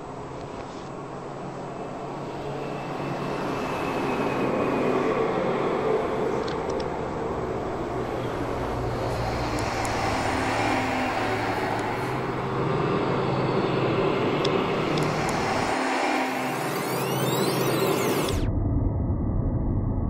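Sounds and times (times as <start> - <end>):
dense rumbling drone: 2.4 - 20.0.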